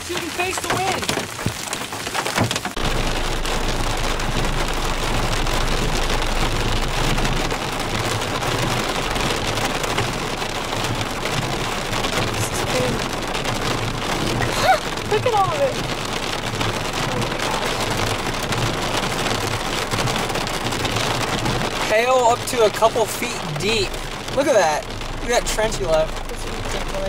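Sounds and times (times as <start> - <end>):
heavy rain falling: 0.0 - 27.0
low engine hum: 2.7 - 27.0.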